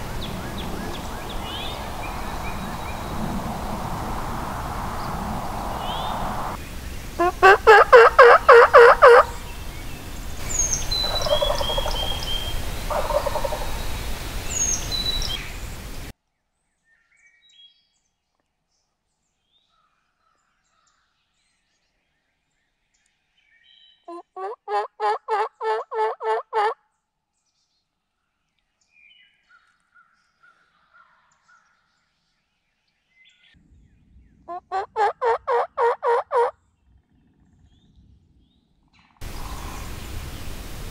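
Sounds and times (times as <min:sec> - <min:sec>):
bird calls: 0:00.0 - 0:16.1, 0:39.2 - 0:40.9
wild turkey gobbling: 0:07.2 - 0:09.7, 0:10.4 - 0:15.4, 0:24.1 - 0:26.8, 0:34.5 - 0:36.5.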